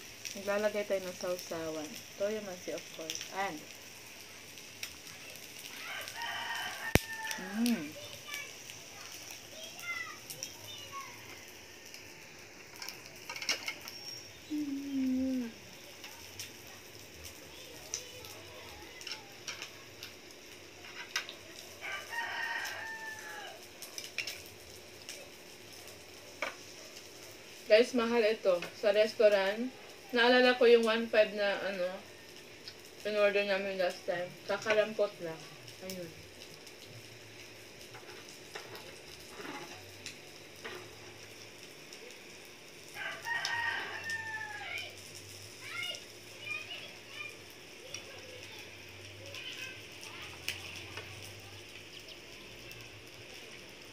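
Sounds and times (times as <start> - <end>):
meat sizzling on grill pan: 0.0 - 53.9
rooster crowing: 5.7 - 7.9, 21.8 - 23.7, 42.9 - 45.0
chopsticks and tongs clicking on plates: 12.7 - 14.0, 19.0 - 19.8, 20.8 - 21.4, 23.9 - 24.5.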